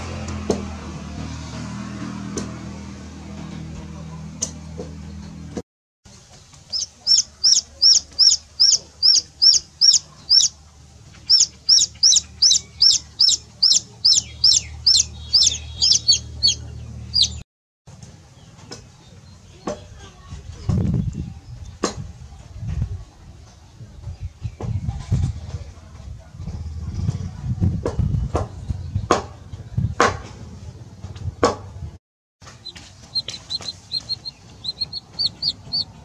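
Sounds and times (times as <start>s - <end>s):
chicks peeping: 6.3s - 17.4s, 32.5s - 36.0s.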